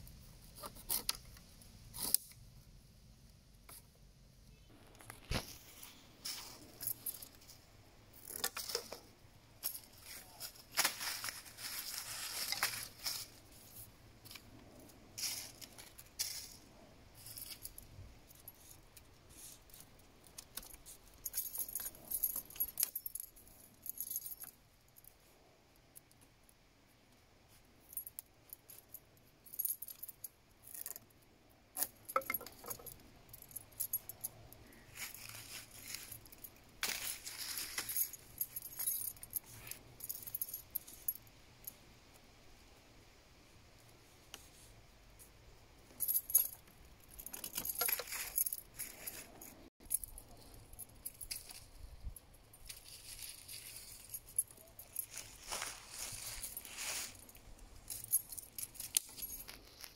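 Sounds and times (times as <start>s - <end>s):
withies rustling and scraping: 4.7s - 25.4s, 31.8s - 41.8s, 44.1s - 59.9s.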